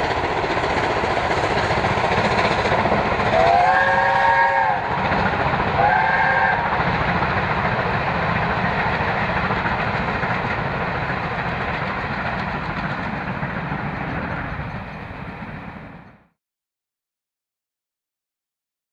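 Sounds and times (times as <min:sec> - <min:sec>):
steam train running past: 0:00.0 - 0:16.4
steam whistle: 0:03.3 - 0:04.9, 0:05.8 - 0:06.7.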